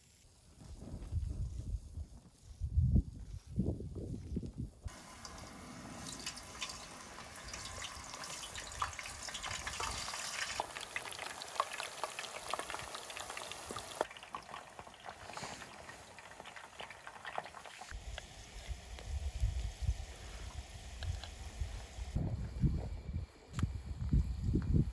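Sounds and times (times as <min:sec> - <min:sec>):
potato chips deep-frying in oil: 0:04.9 - 0:22.2.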